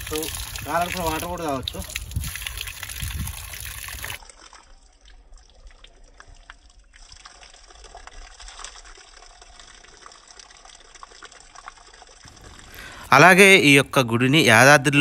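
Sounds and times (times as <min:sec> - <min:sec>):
water splattering onto stone: 0:00.0 - 0:04.6.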